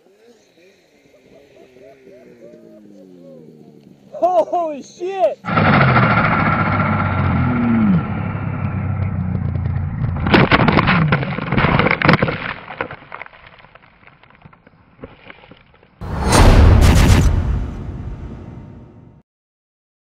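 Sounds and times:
snowmobile crashing through trees: 0:05.5 - 0:11.9
loud bang sound effect: 0:16.0 - 0:19.2.

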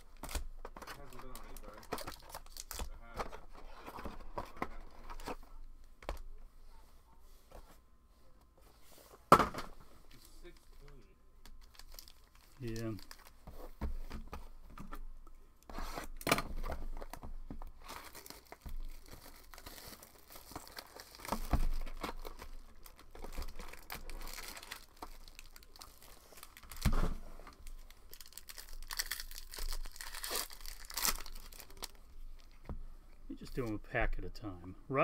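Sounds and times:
foil wrappers tearing and crinkling: 0:00.2 - 0:03.2, 0:11.6 - 0:13.4, 0:17.8 - 0:32.5.

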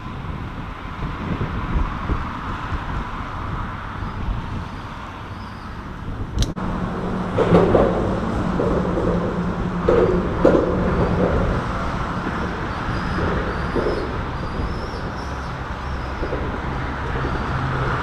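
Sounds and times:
road traffic rumble on bridge: 0:00.0 - 0:18.0
wind noise: 0:00.0 - 0:18.0
soft knocks: 0:06.9 - 0:18.0.

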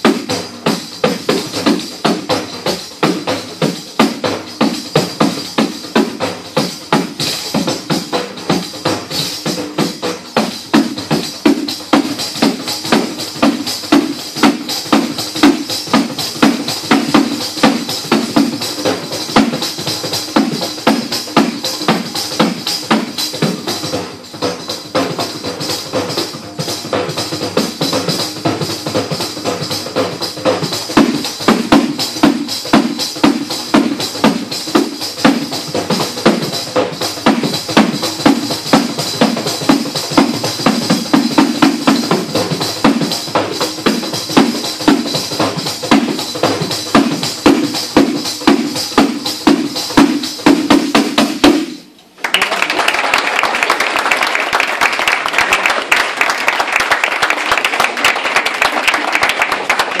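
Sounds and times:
tambourine played fast: 0:00.0 - 0:51.8, 0:52.4 - 1:00.0
applause: 0:52.2 - 1:00.0.

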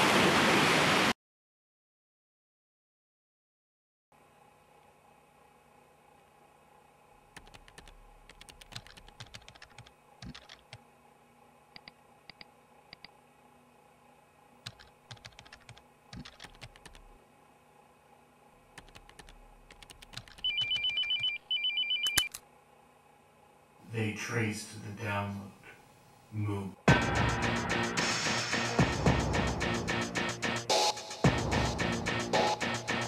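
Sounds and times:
keyboard typing: 0:07.3 - 0:10.8, 0:11.8 - 0:13.1, 0:14.6 - 0:17.1, 0:18.8 - 0:22.4
telephone ringtone trill: 0:20.4 - 0:22.3.

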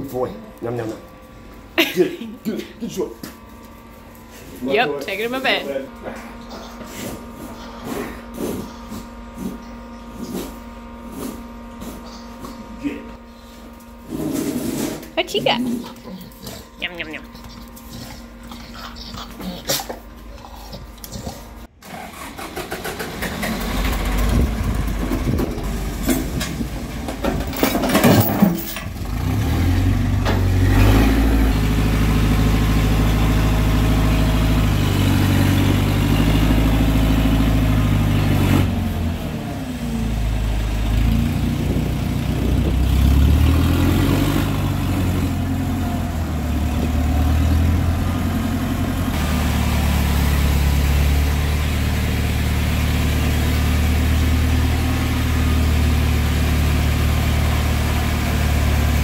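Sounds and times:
engine running: 0:00.0 - 0:59.0.

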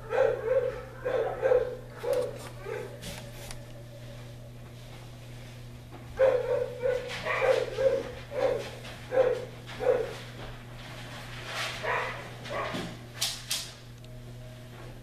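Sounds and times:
dog barking: 0:00.0 - 0:03.0, 0:06.2 - 0:10.2, 0:11.8 - 0:12.8.

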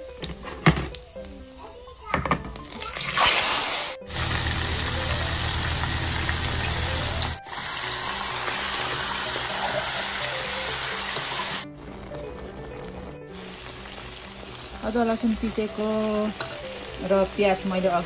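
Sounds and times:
background music: 0:00.0 - 0:18.0
meat sizzling in hot oil: 0:00.0 - 0:18.0.

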